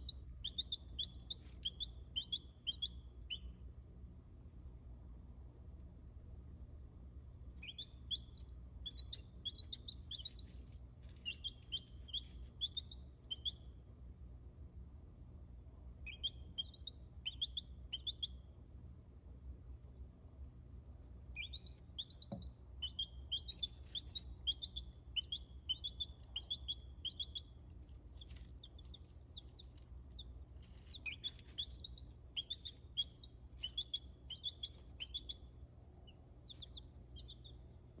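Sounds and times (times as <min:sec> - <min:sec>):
baby chicks peeping: 0:00.0 - 0:03.7, 0:07.4 - 0:13.8, 0:16.0 - 0:18.6, 0:21.0 - 0:38.0
faint low hum: 0:00.0 - 0:38.0.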